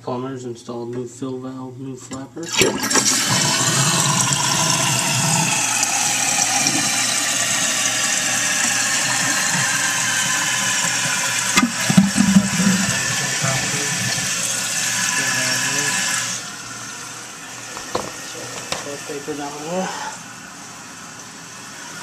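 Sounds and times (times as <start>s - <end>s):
low gurgle: 2.4s - 17.3s
water hissing into toilet tank: 2.4s - 22.0s.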